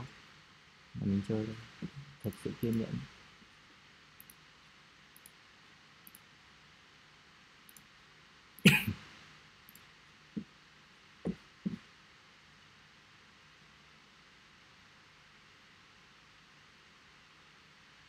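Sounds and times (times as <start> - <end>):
faint steady hiss: 0.0 - 18.0
person coughing: 8.7 - 9.0.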